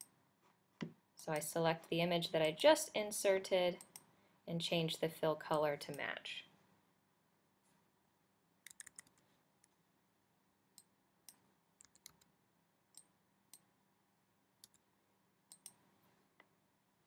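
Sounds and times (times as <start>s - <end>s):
computer mouse and keyboard clicks: 8.6s - 9.8s, 10.8s - 12.3s.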